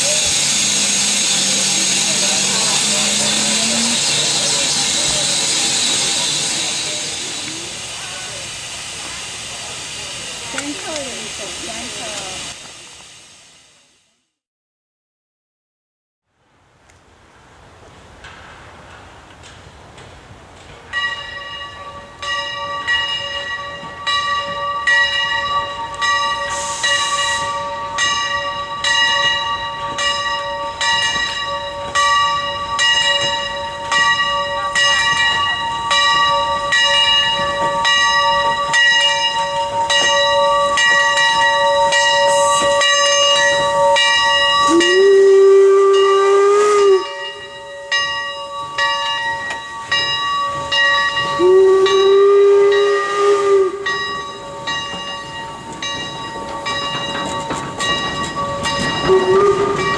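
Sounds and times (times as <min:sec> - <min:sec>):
locomotive bell ringing: 0:00.0 - 0:08.4, 0:20.9 - 0:59.9
steam hiss: 0:00.0 - 0:14.4, 0:21.2 - 0:59.9
train whistle blast: 0:25.9 - 0:27.8, 0:39.3 - 0:47.6, 0:51.3 - 0:54.3, 0:59.0 - 0:59.9.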